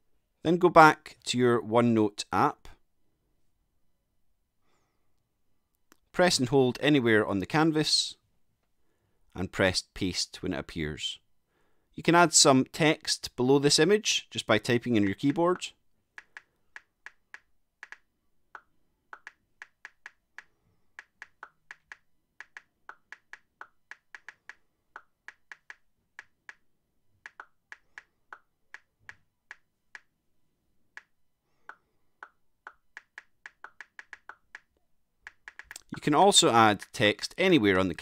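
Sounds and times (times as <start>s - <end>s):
touchscreen keyboard clicks: 15.1s - 30.2s, 30.9s - 35.9s.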